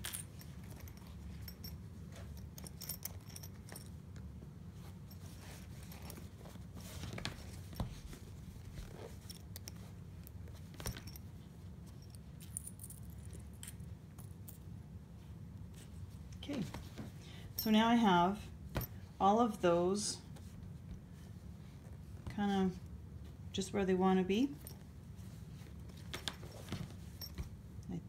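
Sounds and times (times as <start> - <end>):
steady low hum: 0.0 - 28.0
fabric rustling: 4.3 - 12.0.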